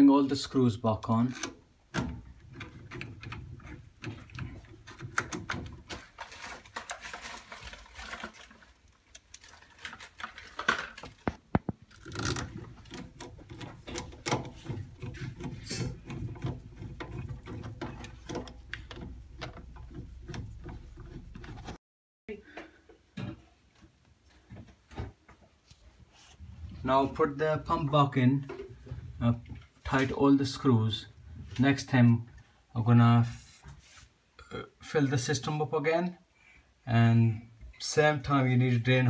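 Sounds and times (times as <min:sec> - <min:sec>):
screwdriver turning screws: 0:11.9 - 0:21.5.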